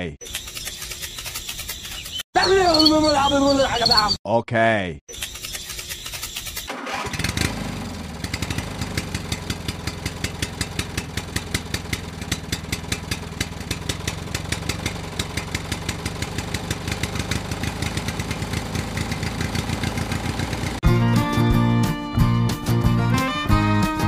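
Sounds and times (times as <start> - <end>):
small engine idling: 6.7 - 20.8.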